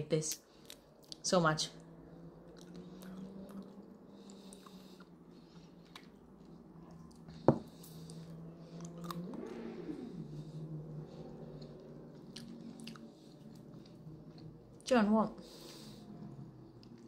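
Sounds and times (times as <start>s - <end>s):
steady low hum: 0.0s - 17.0s
person chewing: 2.5s - 7.9s, 8.8s - 9.3s, 12.3s - 14.4s.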